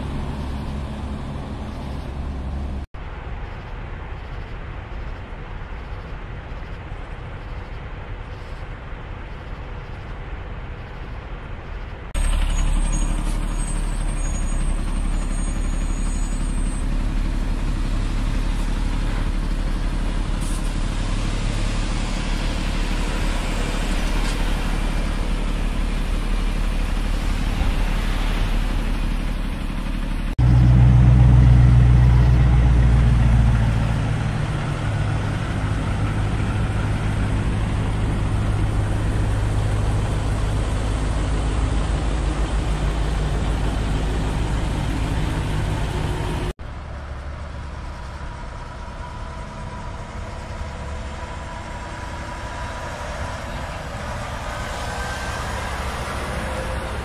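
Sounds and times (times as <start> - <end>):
diesel truck engines droning: 0.0 - 57.0
diesel truck idling: 12.2 - 57.0.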